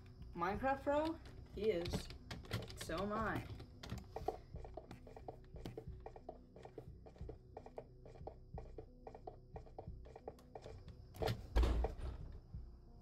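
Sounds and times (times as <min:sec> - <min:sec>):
faint music: 0:00.0 - 0:13.0
keyboard keys clacking: 0:00.6 - 0:11.4.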